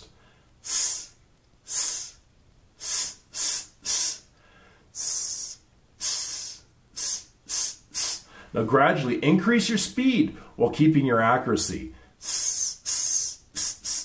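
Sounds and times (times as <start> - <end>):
man making hissing s sounds: 0.0 - 2.2, 2.8 - 4.3, 4.9 - 8.5, 12.2 - 14.0.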